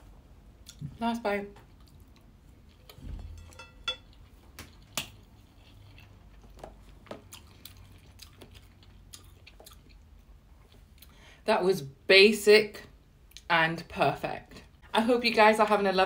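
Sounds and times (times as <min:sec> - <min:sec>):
person chewing: 0:00.6 - 0:00.9, 0:01.6 - 0:11.2.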